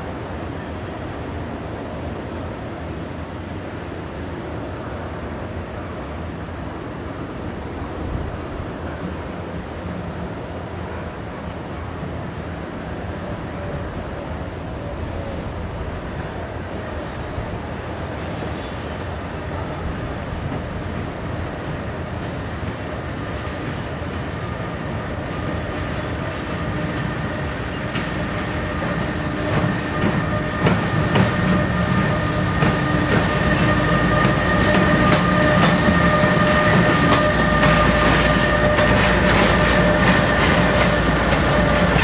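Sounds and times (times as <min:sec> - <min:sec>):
freight train rumble: 0:00.0 - 0:42.0
locomotive tonal drone: 0:26.5 - 0:42.0.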